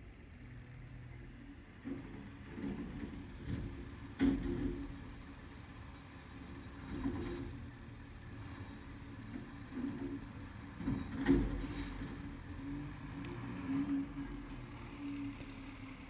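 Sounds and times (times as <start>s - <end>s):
garbage truck engine and hydraulics: 0.0s - 16.0s
brief high squeal: 1.3s - 3.5s.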